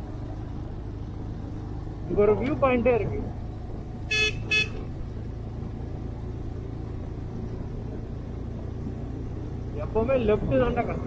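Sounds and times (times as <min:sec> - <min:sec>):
motorcycle rumble: 0:00.0 - 0:11.0
wind: 0:00.0 - 0:11.0
vehicle horn toots: 0:04.1 - 0:04.9.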